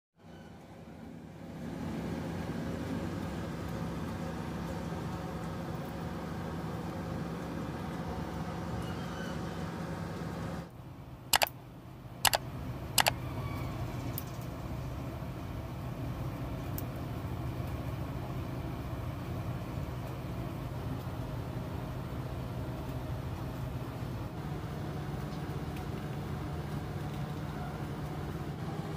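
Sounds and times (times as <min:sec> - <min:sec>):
low mechanical hum: 0:00.2 - 0:28.9
sharp clicks: 0:11.4 - 0:11.6.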